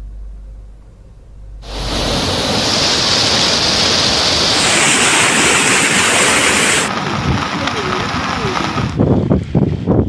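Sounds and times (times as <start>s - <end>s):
turbulent floodwater rushing: 1.6s - 8.8s.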